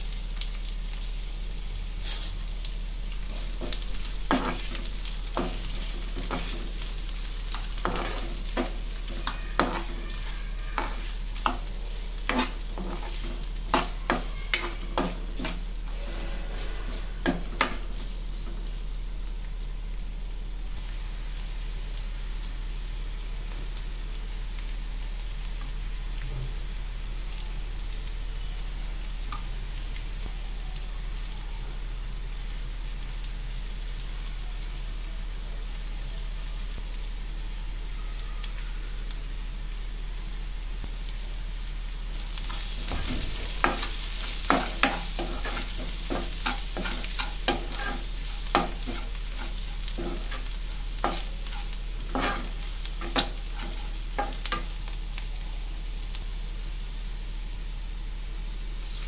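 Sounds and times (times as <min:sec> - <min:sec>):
onions sizzling in hot oil: 0:00.0 - 0:59.0
steel spoon scraping a pan: 0:03.3 - 0:18.6, 0:42.5 - 0:54.8.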